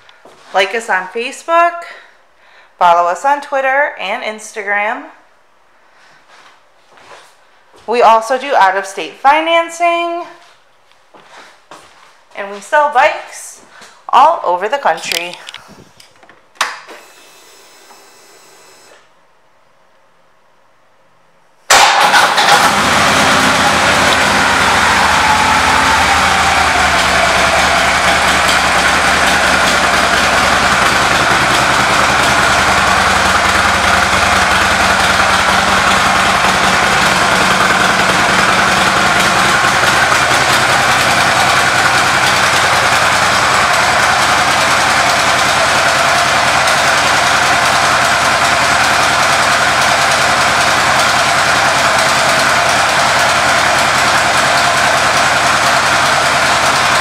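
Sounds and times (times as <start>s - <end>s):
motorcycle engine starting and idling: 21.7s - 57.0s.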